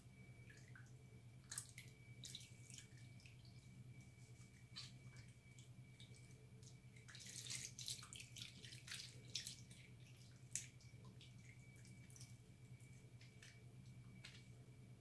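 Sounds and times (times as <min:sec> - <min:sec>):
small water splashes: 0:00.4 - 0:03.6, 0:04.6 - 0:12.4
water dripping: 0:00.4 - 0:14.5
wet soap squishing: 0:04.2 - 0:12.4.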